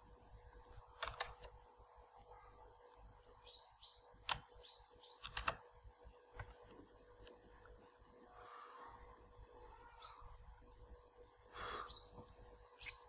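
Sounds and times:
computer keyboard and mouse clicks: 0:00.7 - 0:01.6, 0:04.2 - 0:04.5, 0:05.2 - 0:05.6, 0:06.3 - 0:07.7
faint bird chirps: 0:03.2 - 0:05.5, 0:08.3 - 0:10.6, 0:11.3 - 0:13.0.

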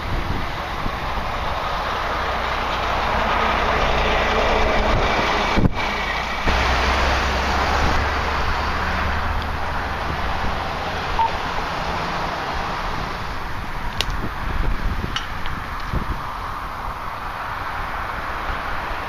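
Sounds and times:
steady rushing noise: 0:00.0 - 0:19.0.

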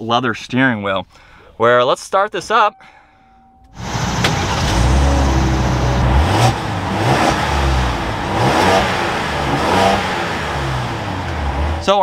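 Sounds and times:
engine revving: 0:03.8 - 0:12.0.

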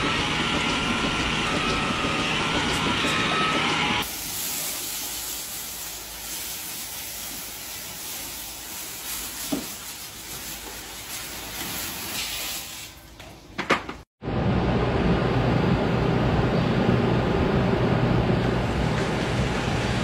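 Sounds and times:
water hissing from spray hose: 0:04.0 - 0:12.9.

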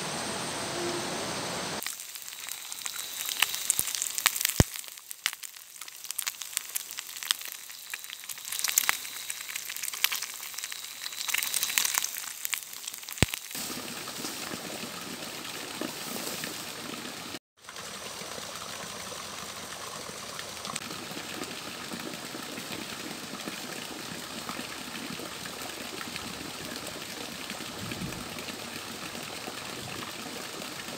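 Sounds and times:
food sizzling in a pan: 0:01.8 - 0:14.4
water pouring from a pipe: 0:01.8 - 0:30.9.

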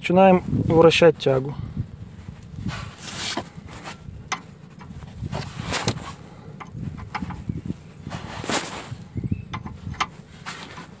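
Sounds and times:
wrench metallic clicks and scrapes: 0:04.3 - 0:07.5, 0:09.5 - 0:11.0.

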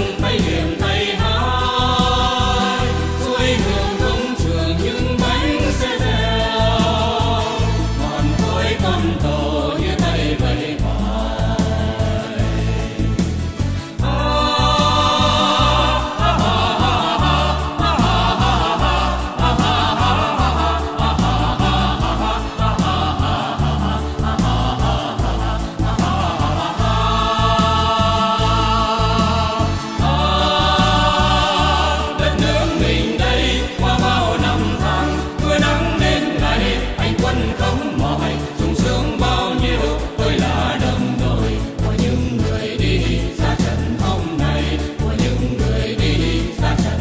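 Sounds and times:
music with heavy bass and beat: 0:00.0 - 0:47.0
people singing: 0:00.0 - 0:47.0.

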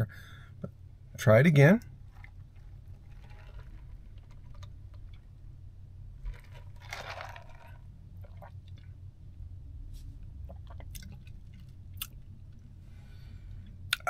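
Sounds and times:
low steady hum: 0:00.0 - 0:14.0
man sipping and swallowing: 0:06.3 - 0:08.9, 0:10.3 - 0:12.2.

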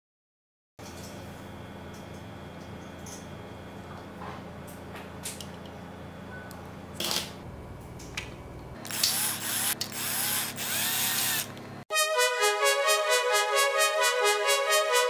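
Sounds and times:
electric screwdriver whirring: 0:08.8 - 0:11.6
brass music: 0:11.9 - 0:15.0.

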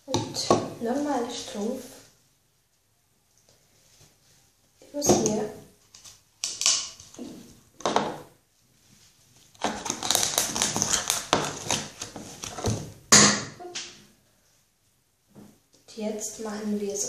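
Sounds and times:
plastic bottle crinkling and scraping: 0:09.4 - 0:12.9.

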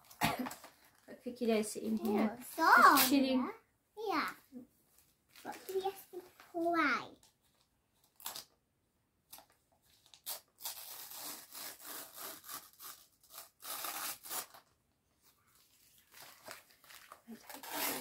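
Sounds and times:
wrapping paper rustling: 0:05.0 - 0:08.6, 0:09.3 - 0:18.0.

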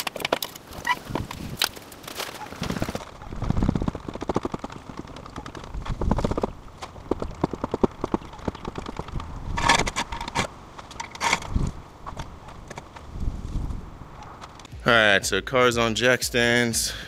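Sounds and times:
harsh scrape: 0:08.7 - 0:14.6.

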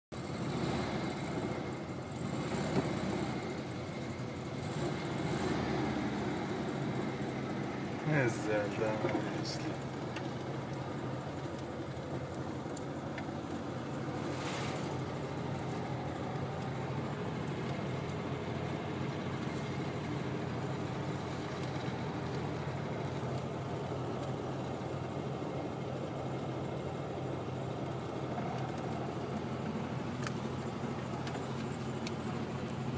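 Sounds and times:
car engine and road noise: 0:00.1 - 0:32.9.

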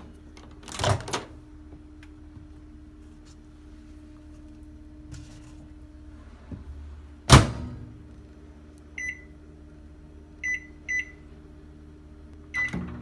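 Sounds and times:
microwave door banging shut: 0:07.3 - 0:07.8
keypad beeps: 0:12.5 - 0:12.8.

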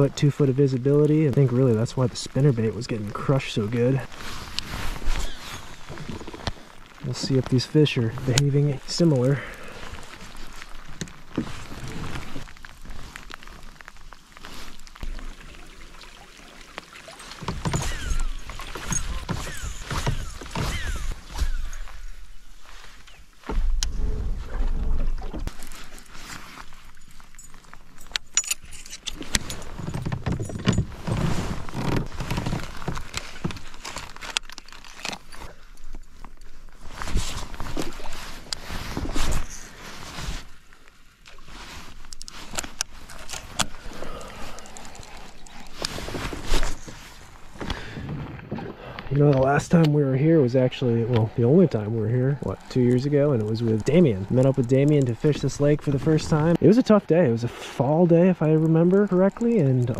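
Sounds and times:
rain drops tapping: 0:00.0 - 0:22.1, 0:49.1 - 0:57.2, 0:57.8 - 0:59.9
rustling clothing: 0:24.2 - 0:44.0, 0:44.7 - 0:48.0.

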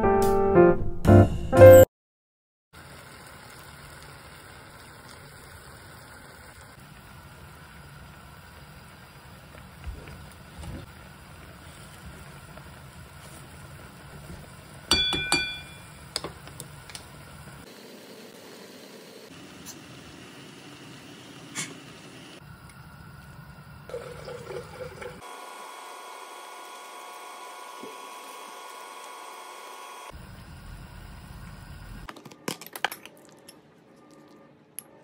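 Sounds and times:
gas stove burner rumble: 0:02.8 - 0:18.3
sharp ringing clinks: 0:14.9 - 0:16.0.

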